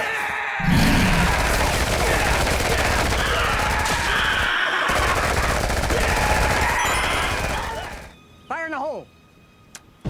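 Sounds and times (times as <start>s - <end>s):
rapid gunfire: 0.9s - 8.1s.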